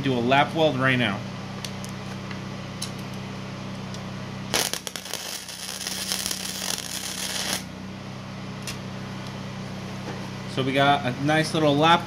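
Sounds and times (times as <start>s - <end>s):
welder arc crackling: 4.5s - 7.7s.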